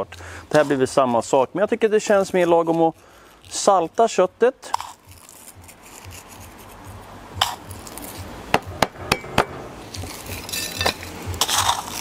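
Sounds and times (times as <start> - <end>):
fingers rubbing salt into meat: 0.5 - 8.4.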